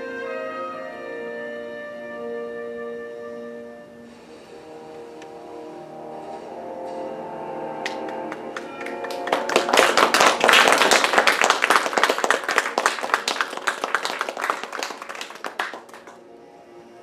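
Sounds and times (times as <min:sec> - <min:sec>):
audience applauding: 0:07.8 - 0:16.2.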